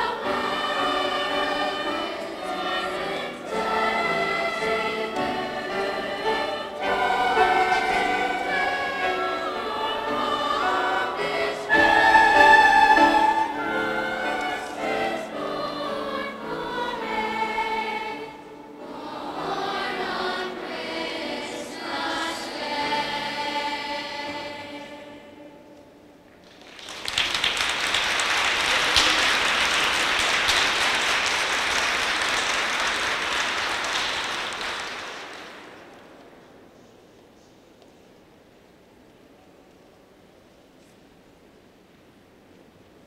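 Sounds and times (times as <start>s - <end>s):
children's choir singing: 0.0s - 26.1s.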